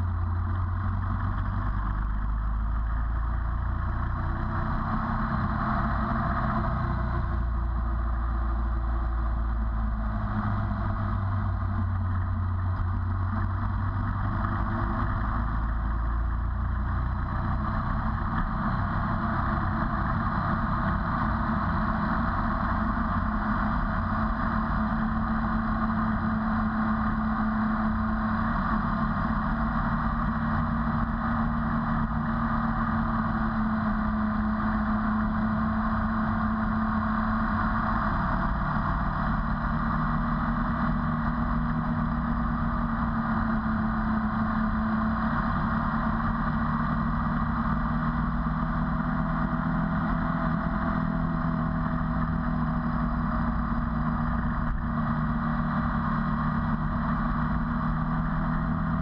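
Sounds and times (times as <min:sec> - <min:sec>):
motorcycle engine: 0:00.0 - 0:59.0
road and wind noise: 0:00.0 - 0:59.0.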